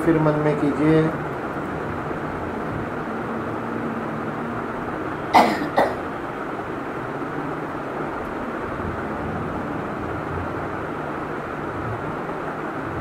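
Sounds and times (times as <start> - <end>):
steady background hiss: 0.0 - 13.0
person coughing: 5.3 - 6.0.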